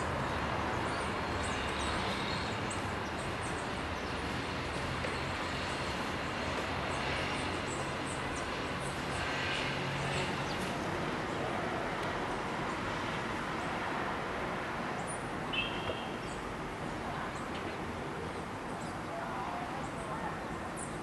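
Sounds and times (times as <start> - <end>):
small birds chirping: 0.2 - 6.1.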